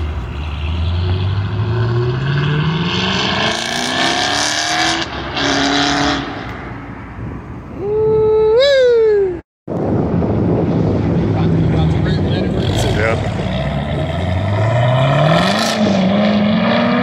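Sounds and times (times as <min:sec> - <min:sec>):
car engine accelerating hard: 0:10.9 - 0:17.0.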